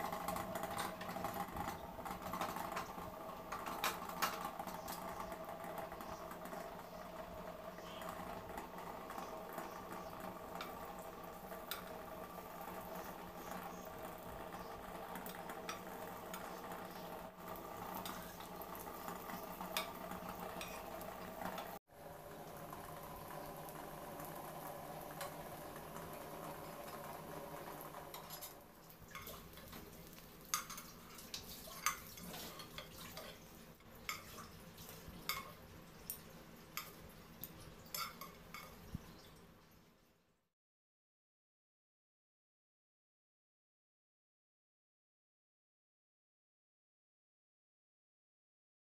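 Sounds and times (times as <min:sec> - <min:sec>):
fritters sizzling in oil: 0:00.0 - 0:39.8
metal utensils clinking on pan: 0:20.6 - 0:21.0, 0:28.1 - 0:29.8, 0:30.5 - 0:33.4, 0:35.3 - 0:38.8.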